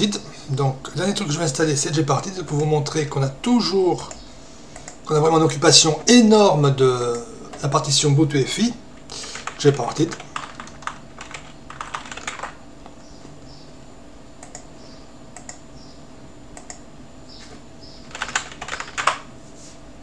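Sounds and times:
faint steady hum: 0:00.0 - 0:20.0
typing on computer keyboard: 0:09.2 - 0:12.6, 0:18.1 - 0:19.3.

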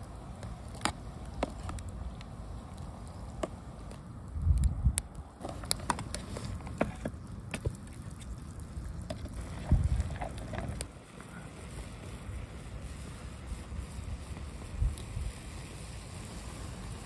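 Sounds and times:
soup boiling: 0:00.0 - 0:04.4, 0:05.2 - 0:17.0
wood fire crackling: 0:00.0 - 0:17.0.

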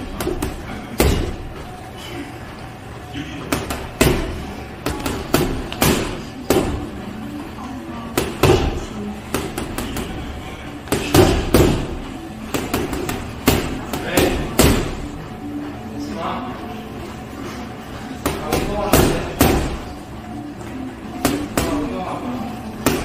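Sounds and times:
gloves punching heavy bag: 0:10.8 - 0:12.0.

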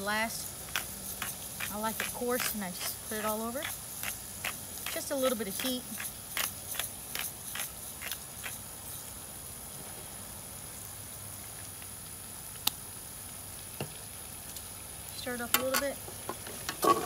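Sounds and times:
faint steady hiss: 0:00.0 - 0:17.0
pepper grinder crunching: 0:00.6 - 0:08.6.

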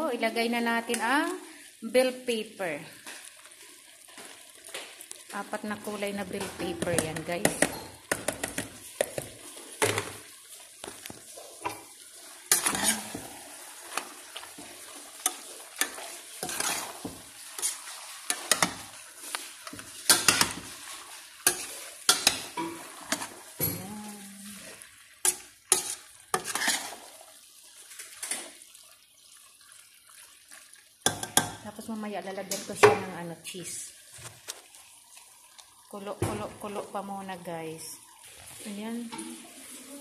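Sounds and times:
food sizzling: 0:00.0 - 0:40.0
utensil scraping metal pan: 0:12.5 - 0:13.3, 0:15.2 - 0:18.9, 0:25.3 - 0:27.0.

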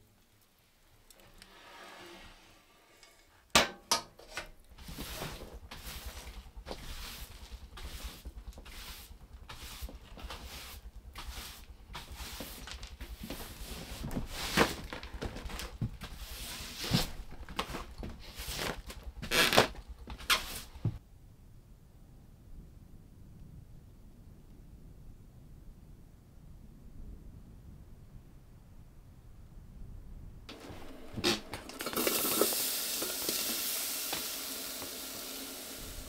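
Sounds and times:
broom sweeping a plywood floor: 0:04.7 - 0:21.0.

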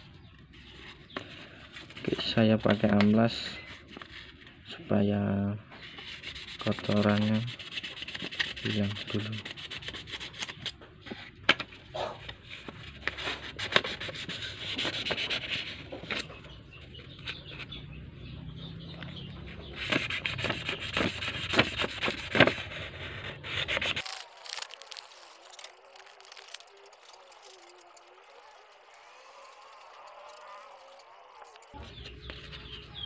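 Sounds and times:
sandpaper scraping metal rod: 0:05.9 - 0:10.6, 0:19.8 - 0:31.8.

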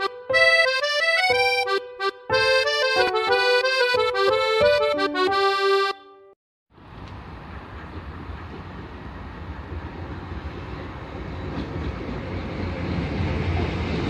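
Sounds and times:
accordion-style instrumental tune: 0:00.0 - 0:06.4.

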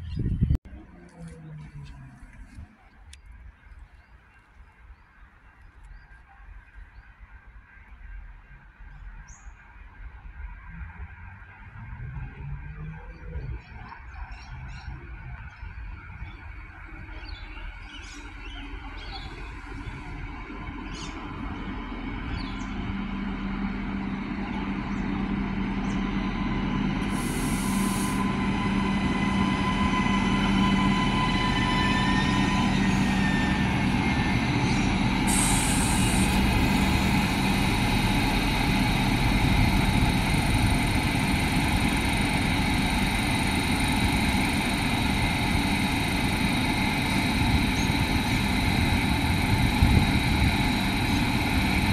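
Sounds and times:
diesel railcar engine running: 0:06.2 - 0:51.9
air hiss bursts: 0:27.1 - 0:28.2, 0:35.3 - 0:36.8.

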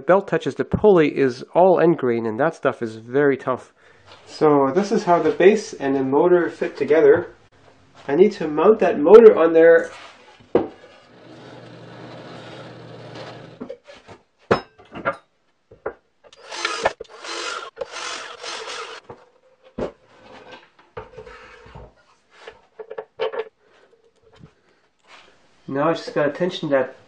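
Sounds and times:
drill press boring into wood: 0:11.0 - 0:13.6, 0:16.3 - 0:19.0
cordless drill bursts: 0:16.3 - 0:19.0.

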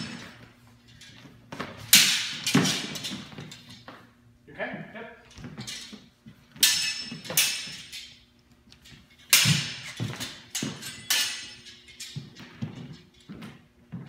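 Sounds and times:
swords clashing: 0:00.0 - 0:03.9, 0:05.4 - 0:12.5.

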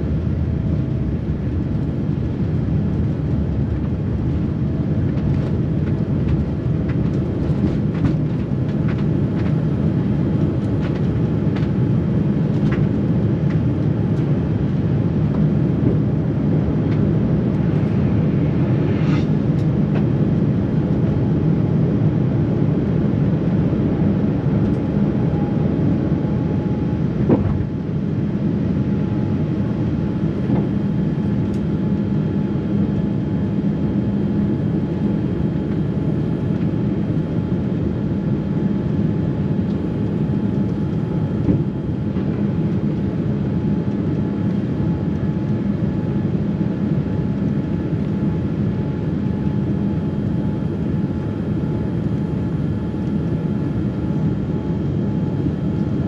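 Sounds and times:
low hum: 0:00.0 - 0:22.0
airplane cabin roar: 0:00.0 - 0:56.0.

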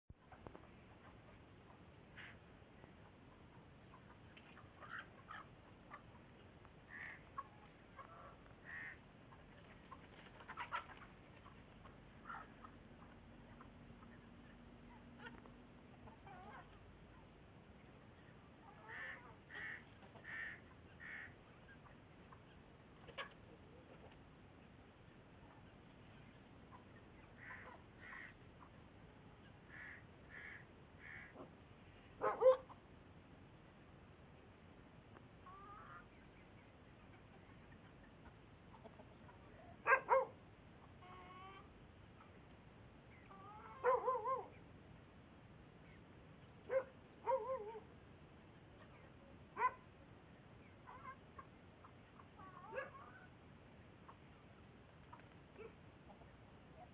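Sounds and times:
chicken calling: 0:06.9 - 0:16.8, 0:18.6 - 0:24.2, 0:25.5 - 0:28.8, 0:29.4 - 0:31.5, 0:35.4 - 0:36.4, 0:37.1 - 0:42.4, 0:43.1 - 0:44.6.

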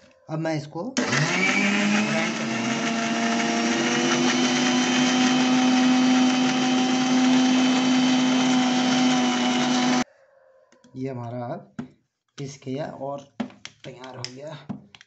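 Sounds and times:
electric mixer grinder running: 0:01.0 - 0:10.0.

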